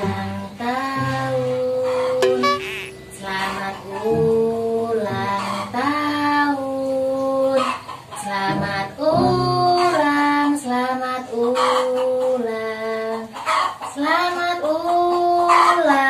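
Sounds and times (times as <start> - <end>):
woman singing slowly: 0.0 - 2.1, 3.2 - 13.3.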